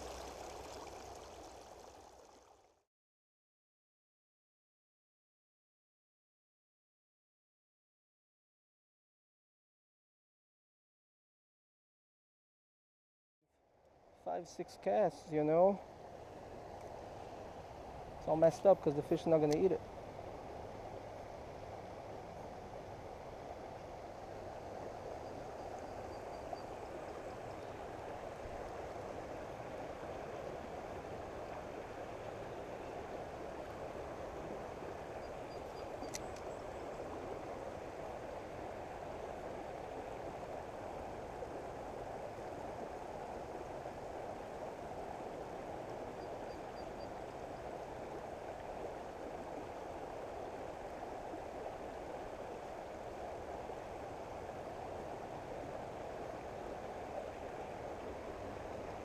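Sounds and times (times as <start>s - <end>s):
creek water rushing over rocks: 0.0s - 2.6s, 16.0s - 35.4s, 47.2s - 59.0s.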